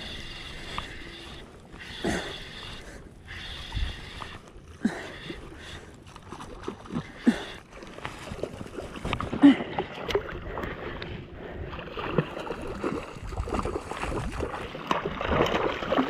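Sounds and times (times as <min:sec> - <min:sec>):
water sloshing and splashing: 0:04.2 - 0:16.0.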